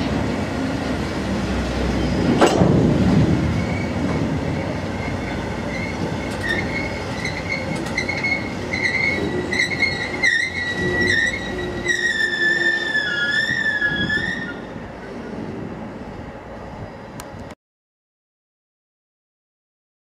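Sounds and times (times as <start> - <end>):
train wheels clattering on rails: 1.8 - 11.4
high wavering wheel squeal: 3.5 - 15.1.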